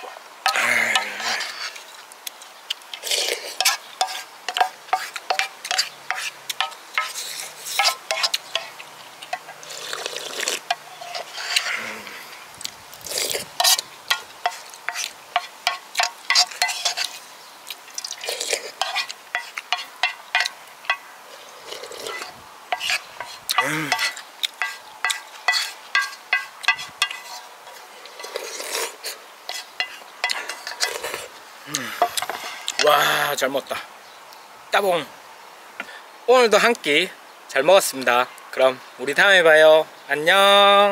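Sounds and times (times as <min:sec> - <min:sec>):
wooden spoon scraping metal pan: 0:00.0 - 0:02.0, 0:03.0 - 0:09.8, 0:10.5 - 0:12.4, 0:13.1 - 0:17.3, 0:18.0 - 0:31.3, 0:31.9 - 0:33.0
slurping and chewing: 0:00.0 - 0:33.2.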